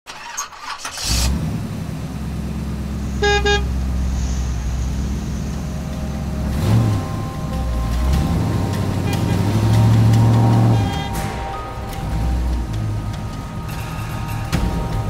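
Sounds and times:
car driving rumble: 1.0s - 15.0s
car horn toots: 3.0s - 4.2s, 5.4s - 15.0s.

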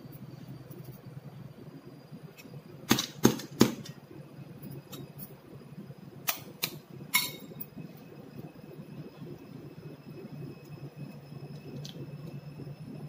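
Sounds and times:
clink with short ring: 7.1s - 7.6s.

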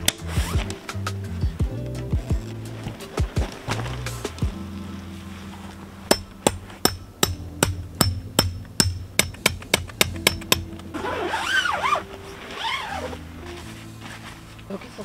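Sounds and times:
hammer striking tent peg: 6.1s - 10.7s.

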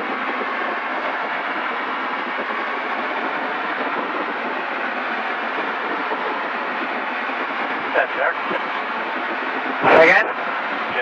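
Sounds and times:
light aircraft cabin noise: 0.0s - 11.0s.

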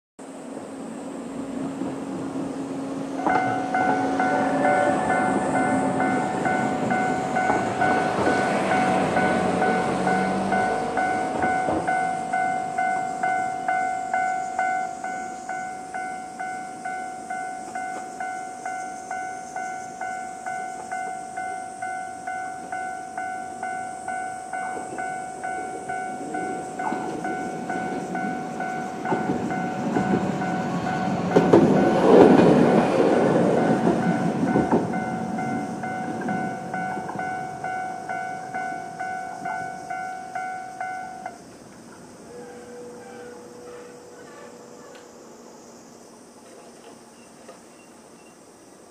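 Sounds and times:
tram rumbling over crossing: 0.2s - 48.6s
level-crossing bell ringing: 3.2s - 41.3s.

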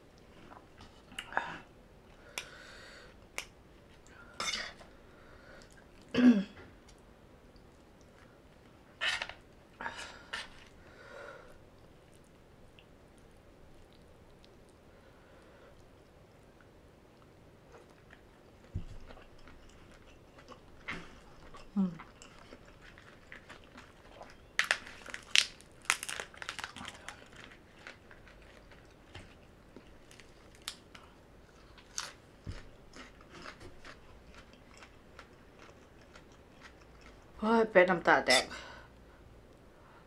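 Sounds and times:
person chewing crunchy food: 17.2s - 37.4s.

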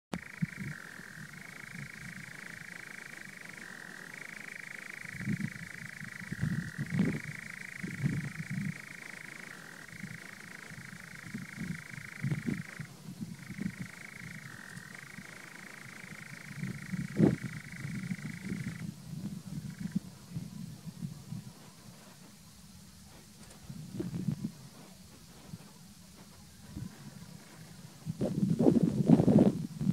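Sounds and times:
nightjar churring trill: 0.1s - 20.9s.

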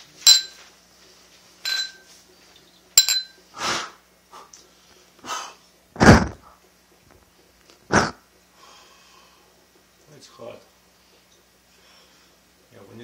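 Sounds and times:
glasses clinking: 0.0s - 0.7s, 1.6s - 2.1s, 3.0s - 3.4s
loud sharp exhale: 3.6s - 4.5s
puffs of breath: 3.6s - 5.6s, 8.5s - 9.5s, 11.6s - 12.5s.

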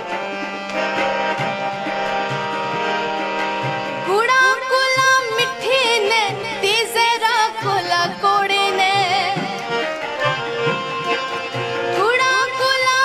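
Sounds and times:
harmonium: 0.0s - 13.0s
tabla: 0.0s - 13.0s
woman singing folk song: 4.1s - 9.6s, 12.0s - 13.0s.

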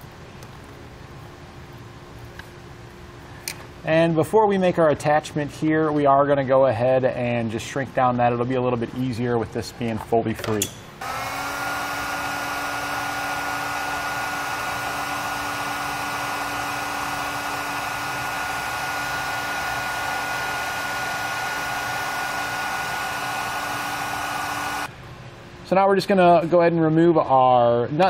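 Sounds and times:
heat gun air rush and whine: 11.0s - 24.9s.

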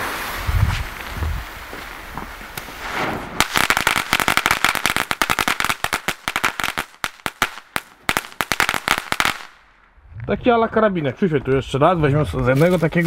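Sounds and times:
firework fuse fizzing: 0.0s - 9.6s
firework crackling pops: 0.0s - 9.7s.

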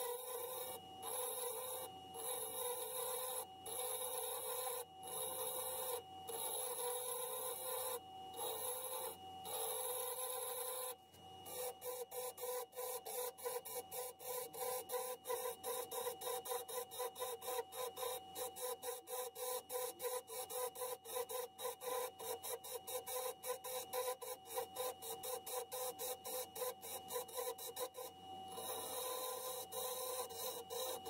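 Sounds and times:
wood lathe electric whine: 0.0s - 10.9s, 11.5s - 16.8s, 26.6s - 31.0s.

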